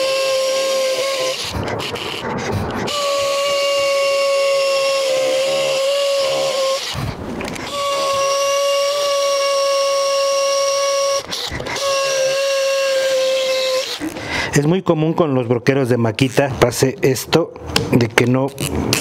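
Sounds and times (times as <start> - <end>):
cordless drill whining: 0.0 - 14.2.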